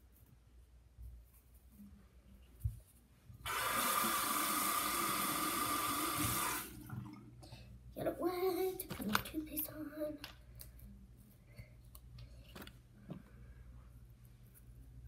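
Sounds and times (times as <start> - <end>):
tap water running into sink: 3.5 - 7.2.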